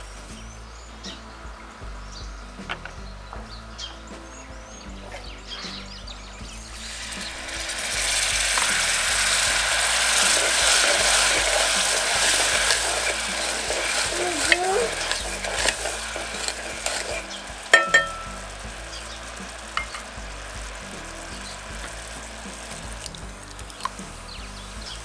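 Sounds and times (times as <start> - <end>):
vinegar sizzling in hot pot: 6.4 - 25.0
wooden spoon stirring: 6.7 - 24.0
knock and ring of metal pot: 17.7 - 18.4.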